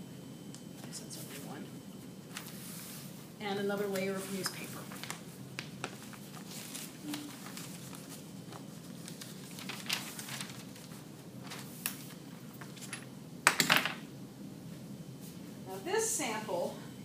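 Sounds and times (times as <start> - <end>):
newspaper rustling: 2.3 - 3.2, 3.8 - 13.0.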